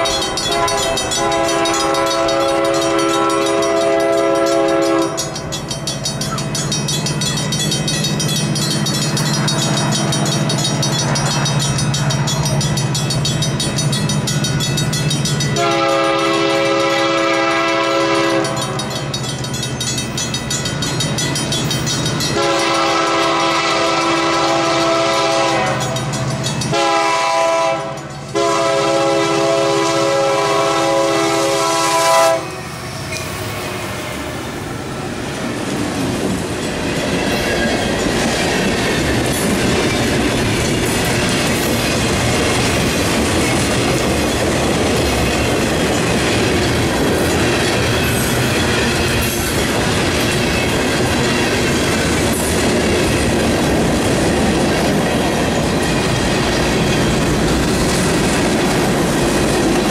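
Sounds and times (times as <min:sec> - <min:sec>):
locomotive air horn blasts: 0:00.0 - 0:05.4, 0:15.6 - 0:18.8, 0:22.4 - 0:26.0, 0:26.7 - 0:32.7
crossing signal bell ringing: 0:00.0 - 0:28.7, 0:36.6 - 0:52.5
low train rumble: 0:00.0 - 0:59.9.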